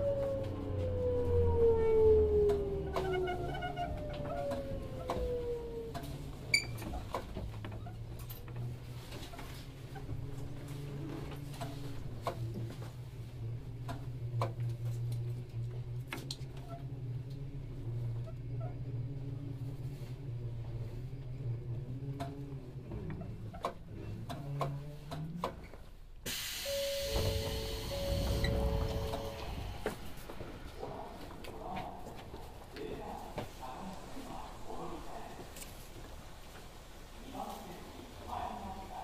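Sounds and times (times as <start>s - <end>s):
train motors whining down: 26.3s - 30.4s.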